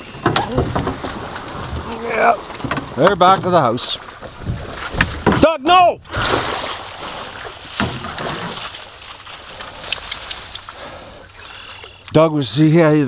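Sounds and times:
dry stalks rustling: 0:00.0 - 0:05.4, 0:06.2 - 0:12.1
water sloshing against hull: 0:00.0 - 0:12.2.

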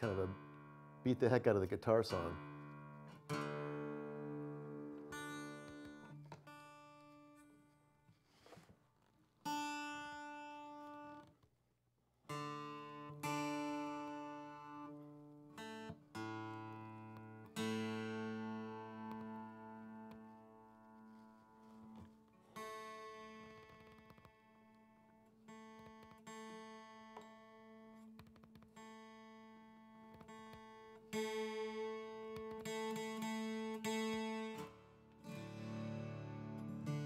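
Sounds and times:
acoustic guitar chords strummed: 0:00.0 - 0:07.5, 0:12.3 - 0:23.4, 0:30.2 - 0:37.0.

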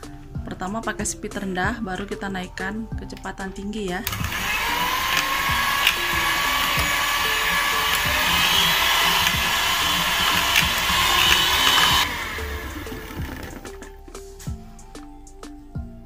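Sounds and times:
electric hand mixer whirring: 0:04.0 - 0:13.9.

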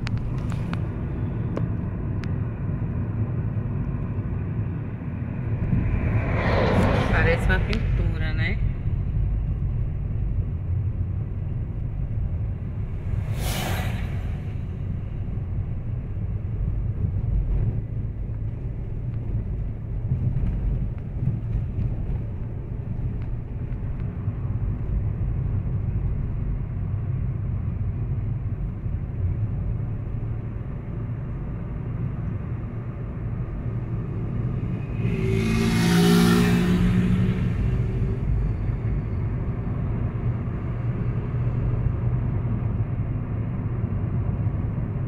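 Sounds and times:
car cabin road and engine rumble: 0:00.0 - 0:45.0
vehicle passing close by: 0:05.0 - 0:09.2, 0:12.6 - 0:15.2, 0:33.9 - 0:38.4.

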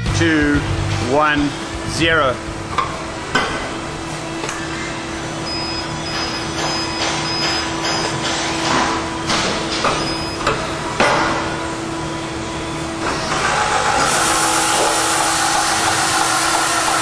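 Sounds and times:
drill spindle humming: 0:12.8 - 0:17.0.

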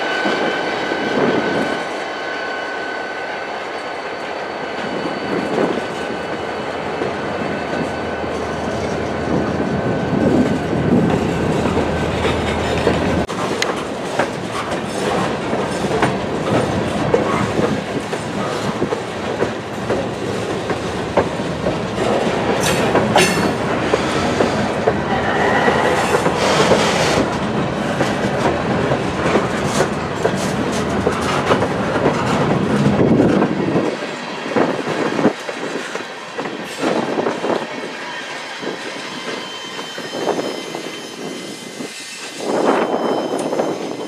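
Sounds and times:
low train rumble: 0:00.0 - 0:44.0
wheel squeal: 0:01.2 - 0:06.5, 0:38.1 - 0:44.0
train wheels clacking over joints: 0:10.2 - 0:37.6.

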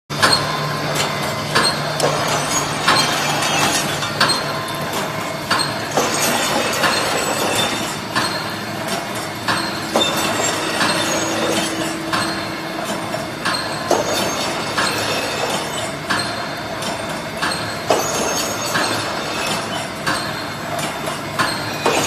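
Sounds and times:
mechanical hum: 0:00.1 - 0:22.0
sharp metallic clacks: 0:00.2 - 0:22.0.

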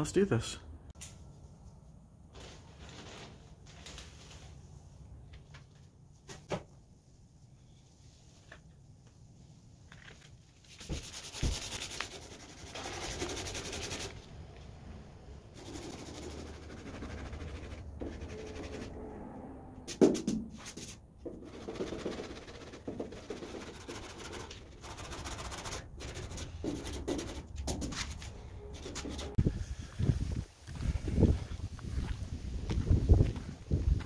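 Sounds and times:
sandpaper rubbing on steel: 0:10.7 - 0:14.2, 0:15.6 - 0:18.9.

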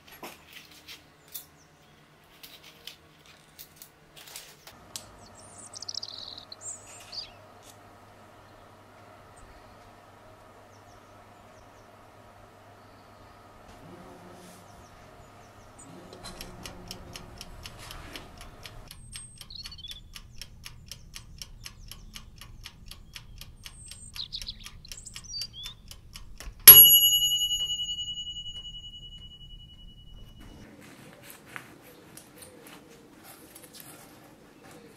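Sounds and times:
kitchen timer ticking: 0:16.2 - 0:30.4
timer bell ringing: 0:26.7 - 0:30.6.

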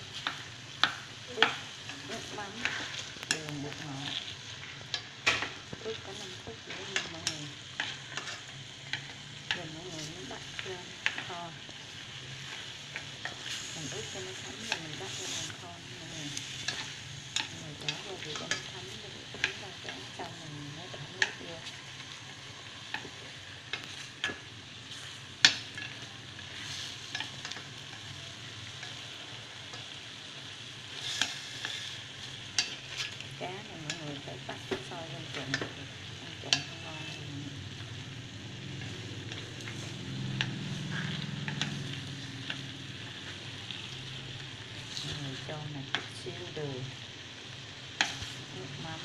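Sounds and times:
fish sizzling in a pot: 0:00.0 - 0:49.0
chopsticks clicking against pot: 0:00.2 - 0:04.2, 0:04.9 - 0:11.8, 0:12.5 - 0:21.8, 0:22.8 - 0:24.5, 0:25.4 - 0:28.1, 0:31.0 - 0:37.3, 0:38.7 - 0:42.7.

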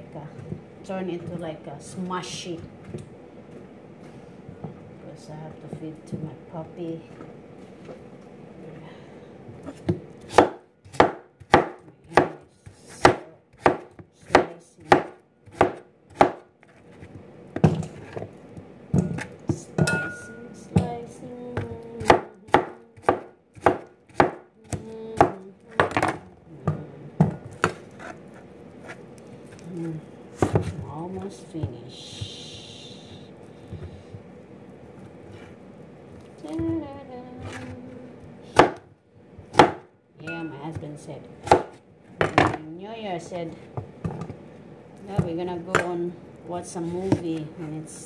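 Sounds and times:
knife chopping on cutting board: 0:09.7 - 0:12.4, 0:13.0 - 0:17.0, 0:22.0 - 0:26.2, 0:38.6 - 0:38.8.

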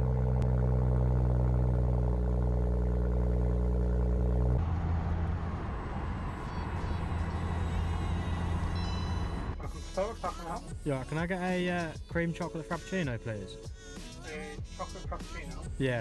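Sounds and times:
engine and road noise inside car: 0:00.0 - 0:10.5
car engine idling: 0:00.0 - 0:10.7.

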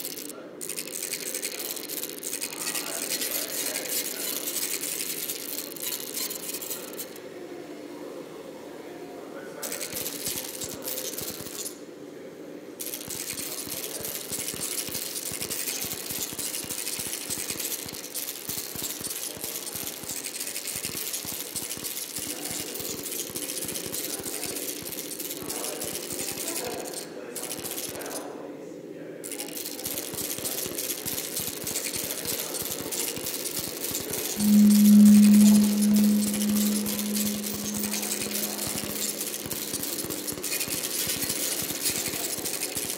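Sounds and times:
low droning hum: 0:34.4 - 0:39.9.

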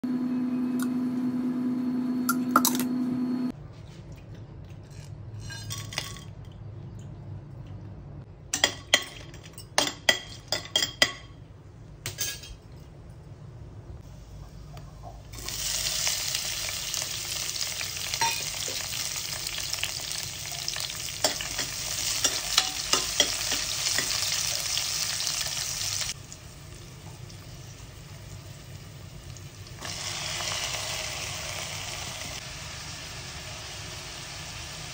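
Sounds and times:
oil sizzling in a pot: 0:15.3 - 0:34.9.

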